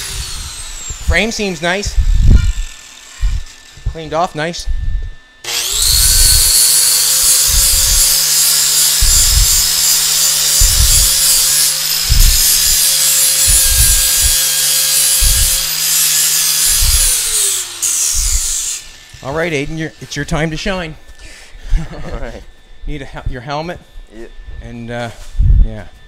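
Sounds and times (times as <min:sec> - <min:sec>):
angle grinder grinding steel: 0:00.0 - 0:25.4
low thumps: 0:01.9 - 0:04.0, 0:09.0 - 0:09.7, 0:10.5 - 0:11.3, 0:12.0 - 0:12.8, 0:13.4 - 0:14.5, 0:15.1 - 0:15.7.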